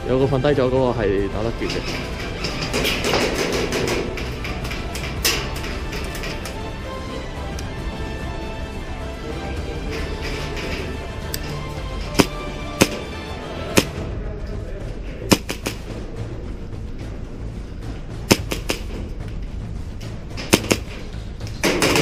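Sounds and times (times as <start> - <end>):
background music: 0.0 - 22.0
airsoft gunfire pops: 15.3 - 15.8.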